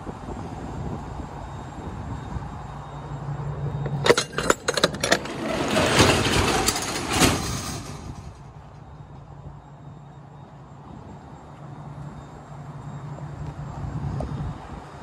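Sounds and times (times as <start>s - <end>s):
metal latch clicking and clanking: 3.8s - 8.4s.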